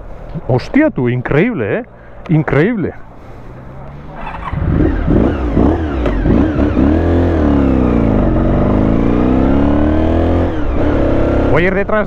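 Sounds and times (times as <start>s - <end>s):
motorcycle engine revving: 3.8s - 11.7s
motorcycle accelerating away: 4.0s - 11.7s.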